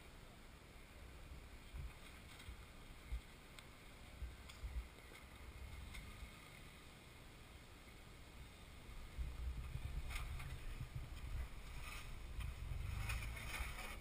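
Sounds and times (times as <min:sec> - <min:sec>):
wind buffeting microphone: 0:04.1 - 0:06.3, 0:08.8 - 0:14.0
engine rumbling over rock: 0:08.4 - 0:14.0.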